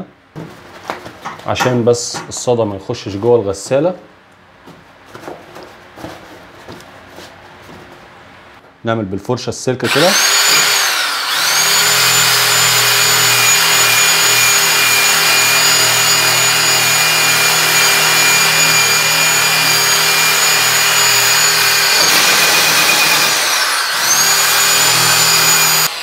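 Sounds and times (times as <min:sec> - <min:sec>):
electric drill motor whine: 0:09.9 - 0:26.0.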